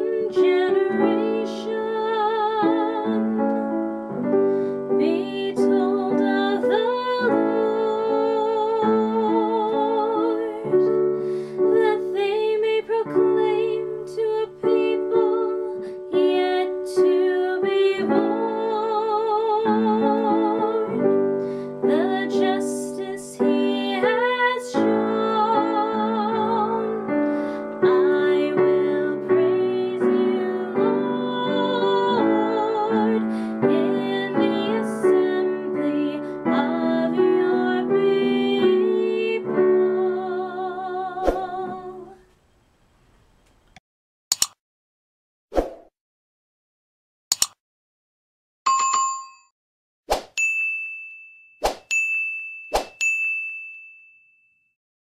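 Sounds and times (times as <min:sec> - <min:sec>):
woman singing with vibrato: 0:00.0 - 0:03.3, 0:05.0 - 0:10.8, 0:11.7 - 0:21.1, 0:21.8 - 0:42.2.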